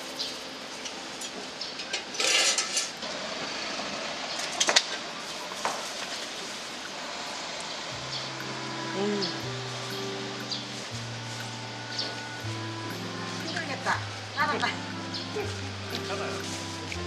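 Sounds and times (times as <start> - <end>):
street background noise: 0.0 - 17.0
rustling noise: 5.2 - 6.9, 9.5 - 13.5, 15.5 - 17.0.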